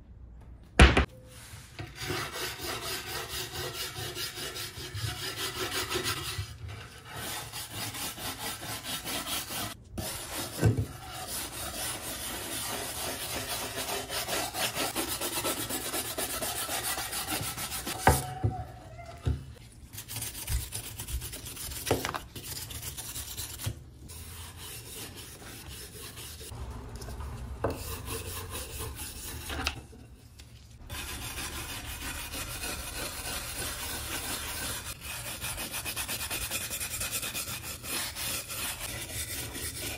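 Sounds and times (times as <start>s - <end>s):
brush scrubbing wood: 1.9s - 18.0s, 30.8s - 39.9s.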